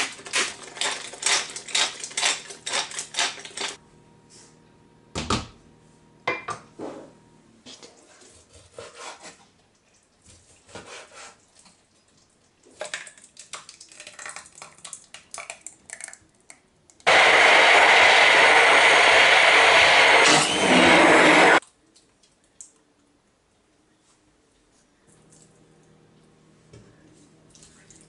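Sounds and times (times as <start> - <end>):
immersion blender running: 17.1 - 21.6.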